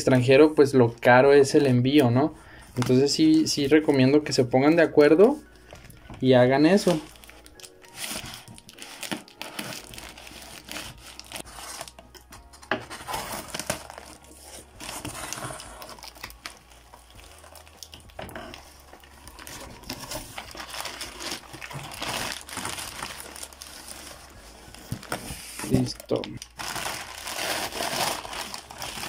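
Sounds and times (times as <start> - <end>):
tape and wrapping crinkling: 1.5 - 29.0
small tearing and crackling: 6.9 - 12.3, 13.1 - 24.4, 25.0 - 29.0.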